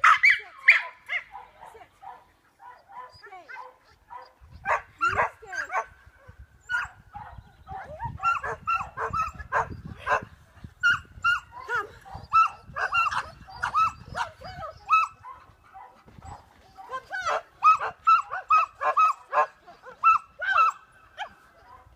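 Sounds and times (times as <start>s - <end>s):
dog barking and yipping: 0.0s - 5.9s, 6.7s - 21.9s
wind rumble on microphone: 4.3s - 18.0s.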